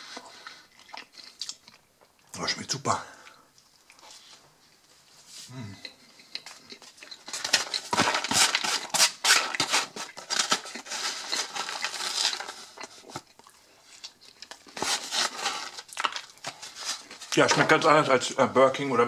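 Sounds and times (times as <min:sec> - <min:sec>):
foam box creaking and scraping: 0:07.2 - 0:13.1, 0:14.7 - 0:18.1.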